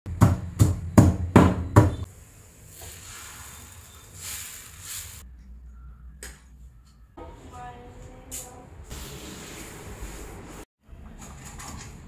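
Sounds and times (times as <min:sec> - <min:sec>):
pestle pounding in stone mortar: 0:00.1 - 0:02.0.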